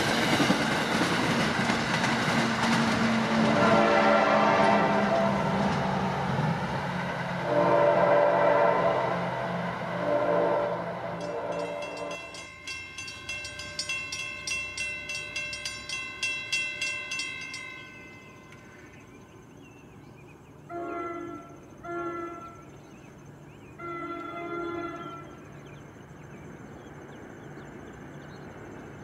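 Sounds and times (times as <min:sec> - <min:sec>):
insect drone: 0:00.0 - 0:29.0
distant train horn: 0:02.6 - 0:06.5, 0:07.2 - 0:12.8, 0:20.7 - 0:22.8, 0:23.7 - 0:25.6
crossing bell ringing: 0:10.8 - 0:19.5.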